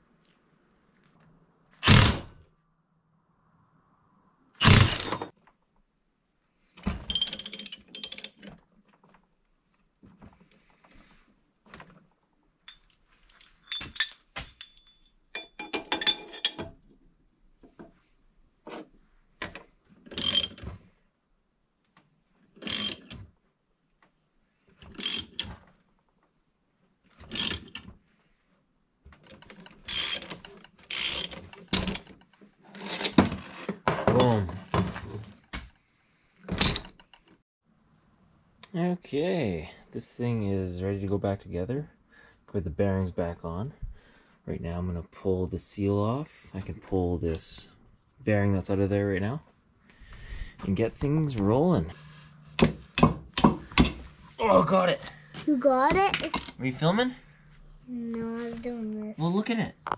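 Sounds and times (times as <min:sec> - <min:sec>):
metal clinks: 0:07.1 - 0:08.4, 0:12.7 - 0:16.6
ratchet handle clicking: 0:22.6 - 0:23.1, 0:25.0 - 0:25.5, 0:27.3 - 0:27.8.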